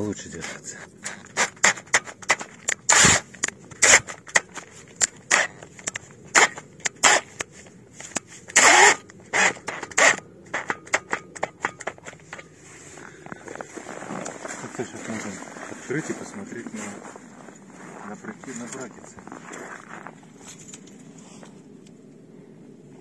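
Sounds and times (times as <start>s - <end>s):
cordless drill driving screws: 2.9s - 3.2s, 8.6s - 10.7s.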